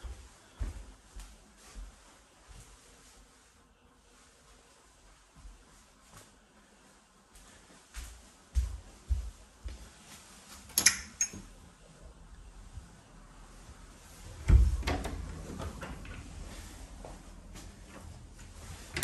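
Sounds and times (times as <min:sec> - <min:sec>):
door closing thud: 0:14.4 - 0:16.0.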